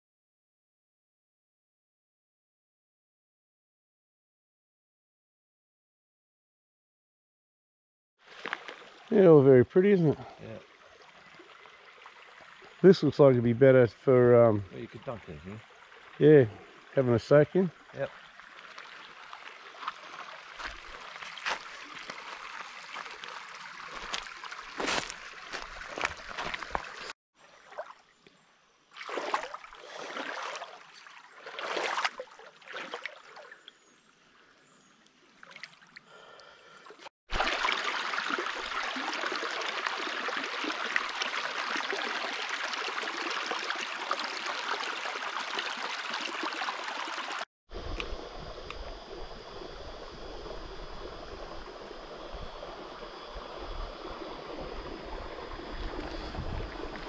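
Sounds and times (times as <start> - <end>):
creek running over stones: 8.2 - 28.2, 28.9 - 33.6, 37.3 - 57.0.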